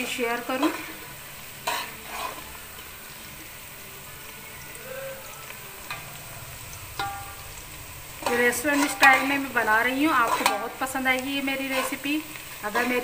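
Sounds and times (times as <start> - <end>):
onions sizzling in oil: 0.0 - 13.0
metal spoon knocking on pot: 7.0 - 7.4.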